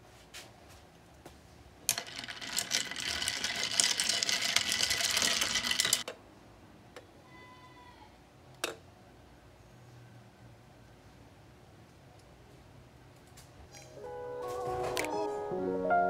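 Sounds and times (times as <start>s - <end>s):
spoon clinking ice in glass: 1.9s - 6.0s.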